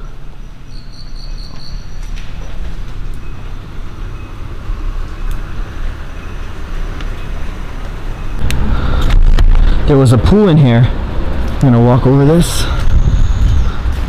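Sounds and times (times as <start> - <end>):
faint high chirping: 0.0 - 8.4
low rumbling outdoor ambience: 0.0 - 14.0.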